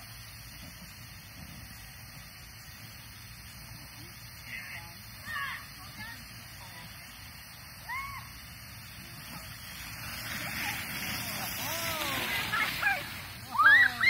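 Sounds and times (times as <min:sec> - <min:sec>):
children whooping and squealing: 0:07.8 - 0:08.6, 0:10.2 - 0:14.0
raft swishing over wet sheet: 0:09.0 - 0:14.0.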